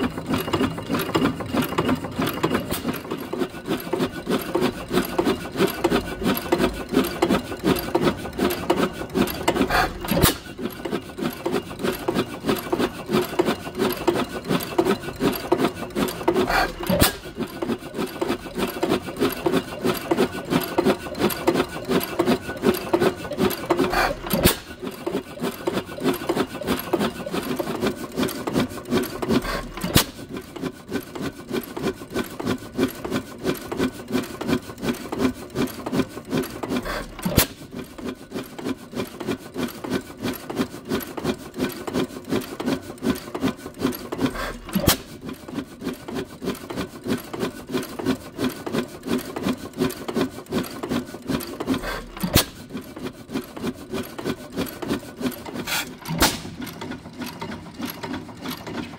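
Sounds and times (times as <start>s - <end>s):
engine valve gear clatter: 0.0s - 30.5s, 41.0s - 45.3s, 50.6s - 53.1s, 54.7s - 58.9s.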